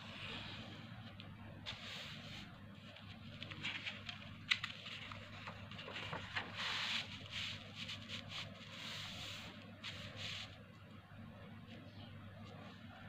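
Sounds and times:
low steady hum: 0:00.0 - 0:13.0
paper rustling and creasing: 0:00.3 - 0:10.6.

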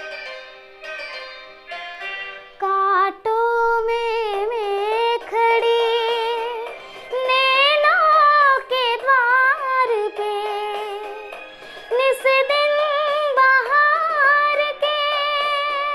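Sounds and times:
girl singing: 0:02.6 - 0:11.3, 0:11.9 - 0:15.9
breaths: 0:11.4 - 0:11.9.

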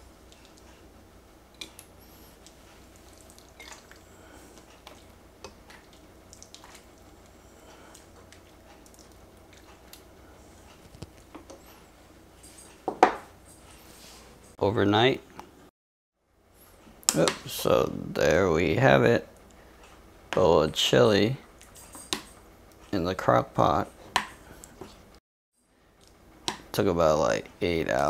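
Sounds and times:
chili squelching and dripping: 0:01.5 - 0:10.2.

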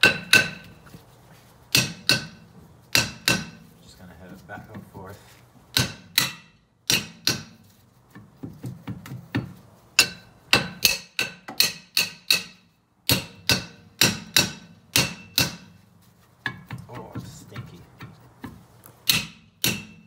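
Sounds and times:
hammer clanking on brake drum: 0:00.0 - 0:00.8, 0:01.7 - 0:03.7, 0:05.7 - 0:07.6, 0:08.5 - 0:15.8, 0:16.5 - 0:20.0.

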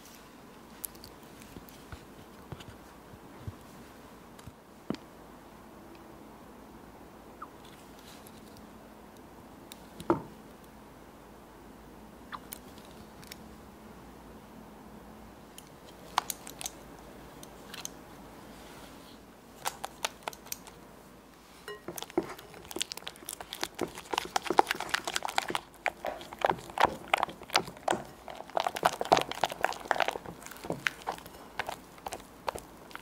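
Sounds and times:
spatula stirring in glass bowl: 0:21.6 - 0:33.0
spatula tapping glass: 0:21.7 - 0:22.3.

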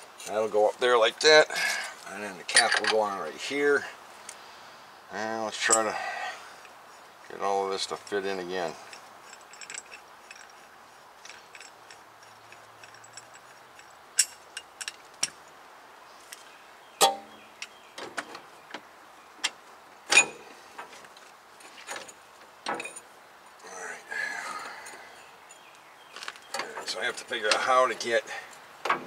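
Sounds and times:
metal parts clinking: 0:02.5 - 0:03.1, 0:08.7 - 0:15.3, 0:21.9 - 0:23.1
metal clank with ring: 0:20.1 - 0:20.4.

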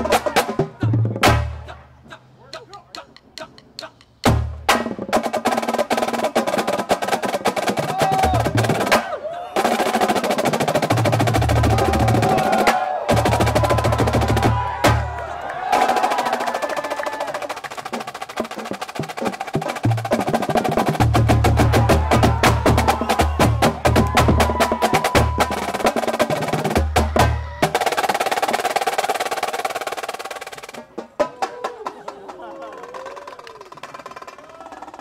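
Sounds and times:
snare and tenor drums playing: 0:00.0 - 0:01.8, 0:02.5 - 0:31.9.

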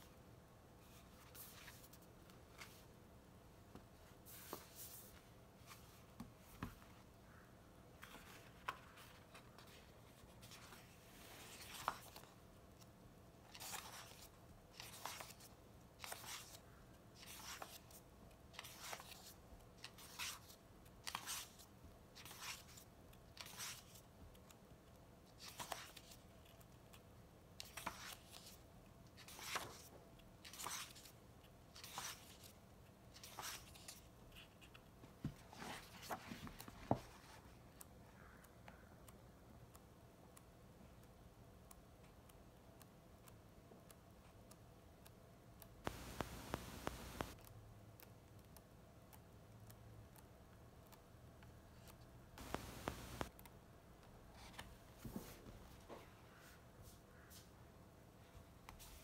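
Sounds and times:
book pages turning: 0:00.8 - 0:02.9, 0:04.3 - 0:06.8, 0:08.0 - 0:12.4, 0:13.5 - 0:16.6, 0:17.2 - 0:18.0, 0:18.6 - 0:22.8, 0:23.4 - 0:24.0, 0:25.4 - 0:26.7, 0:27.6 - 0:28.6, 0:29.2 - 0:31.2, 0:31.8 - 0:37.5, 0:45.9 - 0:47.4, 0:51.8 - 0:53.3.

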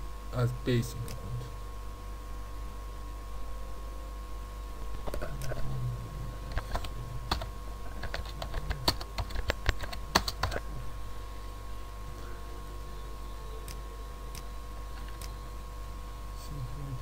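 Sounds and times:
computer keyboard typing: 0:06.5 - 0:10.6.

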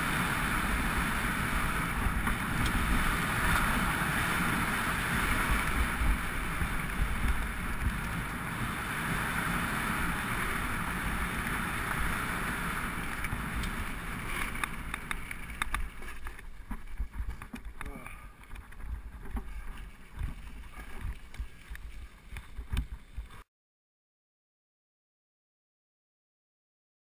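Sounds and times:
wind buffeting microphone: 0:00.0 - 0:17.8
bike tyres rumbling on dirt: 0:00.0 - 0:23.4.

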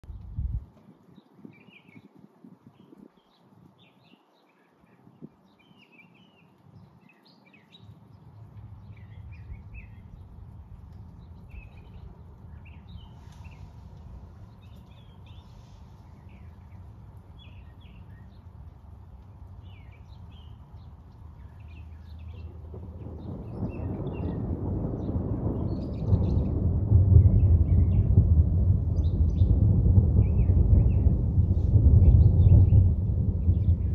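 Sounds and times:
songbirds chirping: 0:00.0 - 0:26.6
low rumble: 0:08.6 - 0:33.9.

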